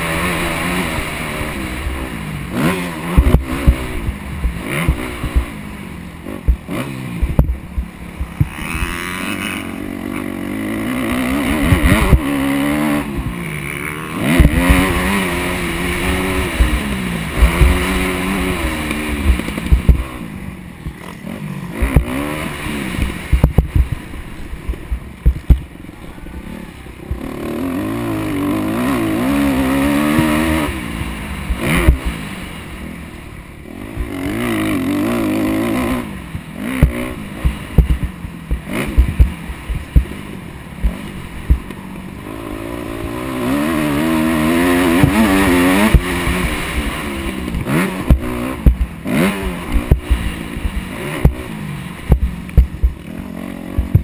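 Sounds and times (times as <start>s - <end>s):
dirt bike engine revving: 0.0s - 54.0s
low thumps: 3.1s - 9.0s, 14.2s - 20.2s, 22.9s - 25.8s, 36.2s - 41.8s, 47.5s - 53.1s, 53.7s - 54.0s.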